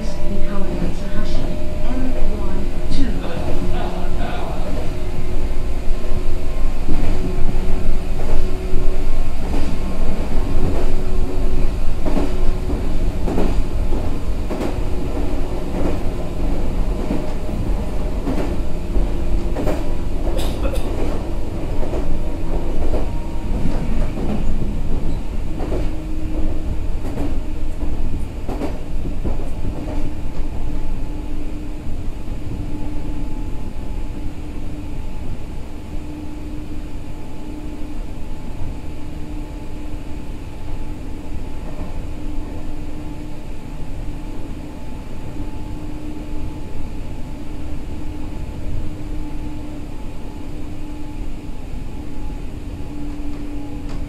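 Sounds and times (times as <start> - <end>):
low hum: 0.0 - 26.9
train rumble: 0.0 - 54.0
train wheels clacking over rail joints: 6.8 - 30.5.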